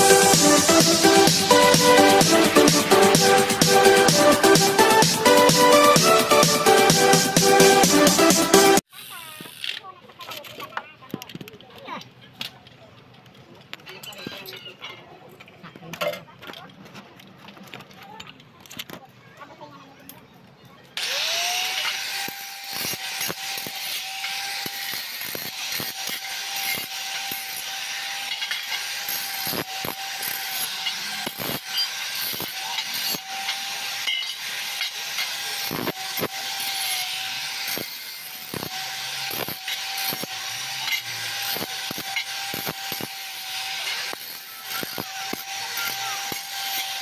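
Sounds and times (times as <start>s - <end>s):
grinder disc grinding steel: 0.0s - 10.8s, 21.0s - 47.0s
angle grinder whine: 21.0s - 47.0s.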